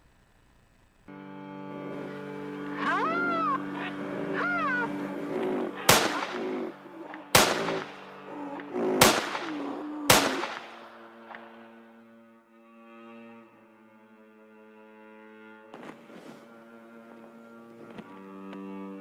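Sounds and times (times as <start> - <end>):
sustained soundtrack music: 1.1 - 19.0
rising-and-falling calls: 2.0 - 11.3
gunshots with ringing tail: 5.8 - 8.2, 9.0 - 11.5.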